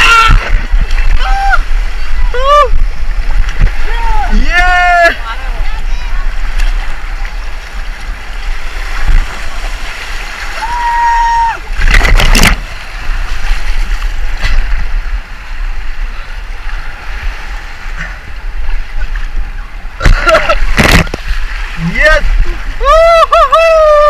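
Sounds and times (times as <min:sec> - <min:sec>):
loud water splash: 0:00.0 - 0:05.2, 0:06.3 - 0:15.4, 0:19.9 - 0:24.0
river water rushing: 0:00.0 - 0:24.0.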